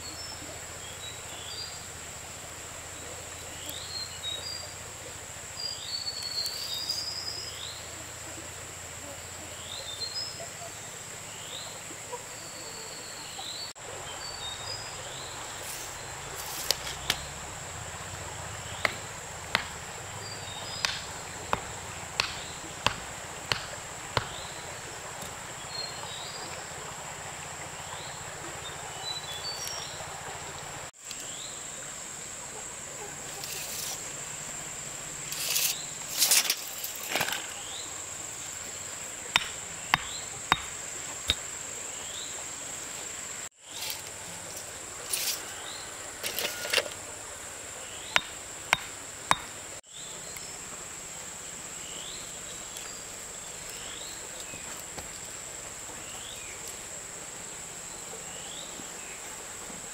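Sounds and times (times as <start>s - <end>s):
insects droning: 0.0s - 59.9s
sharp knocks: 20.8s - 24.4s.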